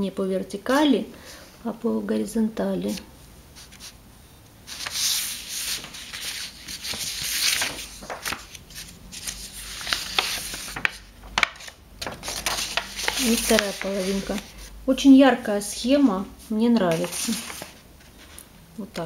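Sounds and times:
paper sheets rustling: 0:03.6 - 0:04.0, 0:04.7 - 0:14.7, 0:16.0 - 0:19.0
sharp paper crackles: 0:04.7 - 0:14.7, 0:16.8 - 0:19.0.

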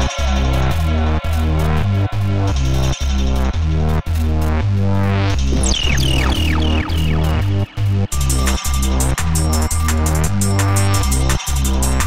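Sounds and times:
electronic dance music: 0:05.4 - 0:12.0
fast drum beat: 0:05.6 - 0:12.0.

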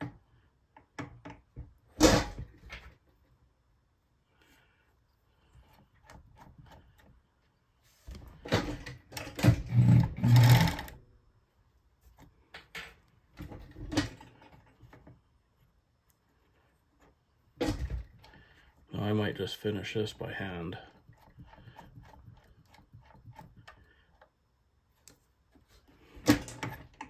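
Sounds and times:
sewing machine stitching: 0:09.2 - 0:11.0.

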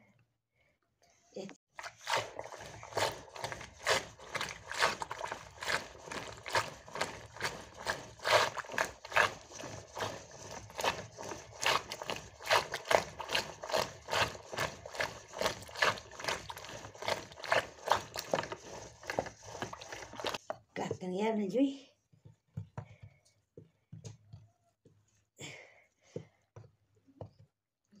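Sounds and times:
rhythmic churning of curd: 0:01.7 - 0:20.6.

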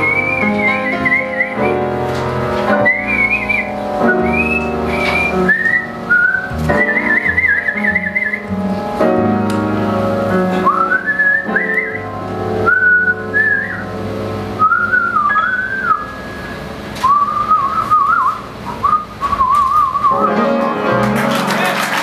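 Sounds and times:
woman whistling a melody: 0:00.0 - 0:02.0, 0:02.8 - 0:08.5, 0:10.6 - 0:13.9, 0:14.6 - 0:20.4
swing band chords: 0:00.0 - 0:17.0.

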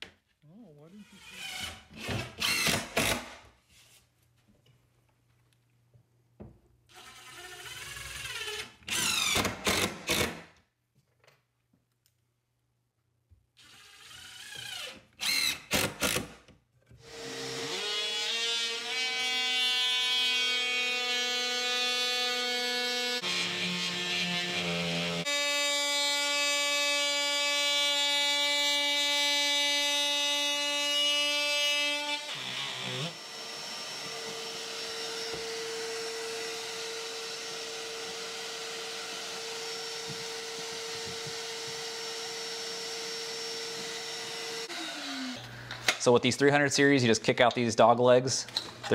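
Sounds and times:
drill driving screw bursts: 0:01.2 - 0:03.4, 0:06.9 - 0:10.5, 0:13.6 - 0:16.4
power tool cutting drywall: 0:06.9 - 0:10.5, 0:17.0 - 0:45.4.

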